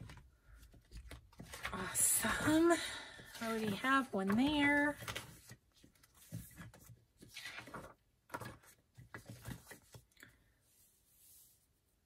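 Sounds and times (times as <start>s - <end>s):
paper rustle: 3.2s - 10.1s.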